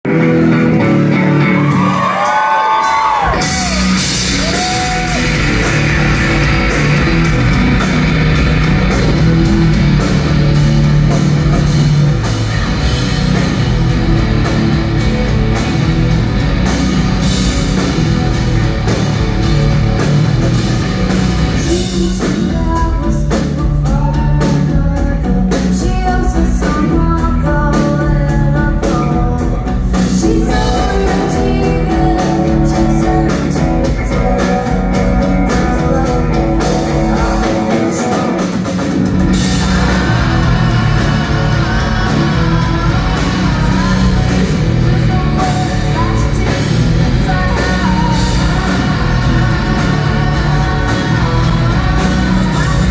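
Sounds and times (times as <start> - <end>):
rock band playing live: 0.0 - 52.9
woman singing: 21.6 - 38.5, 39.3 - 52.9.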